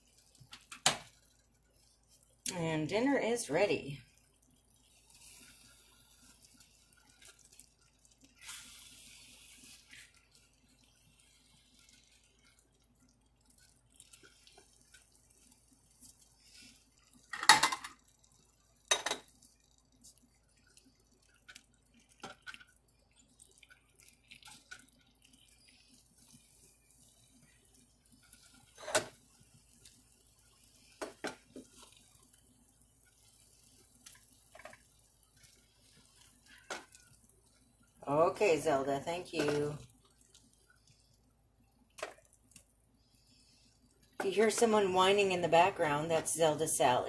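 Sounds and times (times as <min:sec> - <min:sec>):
spatula squelching in lasagna: 0:04.1 - 0:17.3, 0:19.4 - 0:37.9
spatula scraping skillet: 0:08.3 - 0:10.6, 0:25.5 - 0:32.4, 0:38.1 - 0:39.8.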